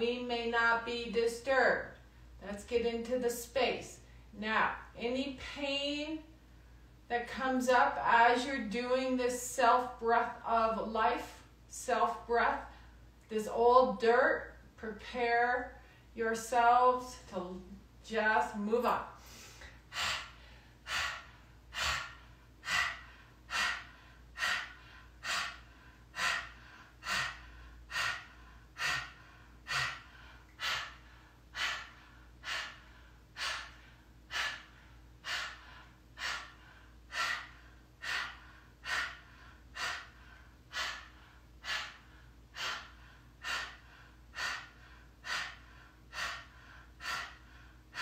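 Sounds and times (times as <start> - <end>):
woman breathing forcefully: 19.1 - 48.0.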